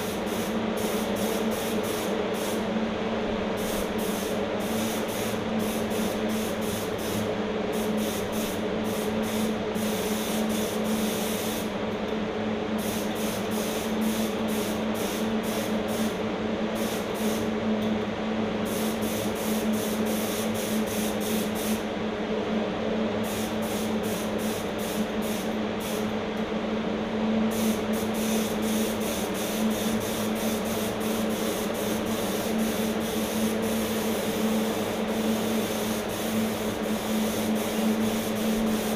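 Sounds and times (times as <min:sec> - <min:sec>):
paint spray gun hissing: 0:00.0 - 0:02.7, 0:03.5 - 0:11.7, 0:12.8 - 0:16.2, 0:16.8 - 0:17.5, 0:18.7 - 0:21.8, 0:23.2 - 0:26.1, 0:27.5 - 0:38.9
steady hum: 0:00.0 - 0:38.9.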